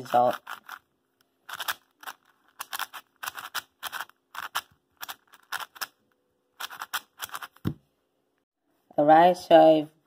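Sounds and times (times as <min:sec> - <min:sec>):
puzzle cube plastic clicking: 0:00.3 - 0:06.0, 0:06.6 - 0:07.8.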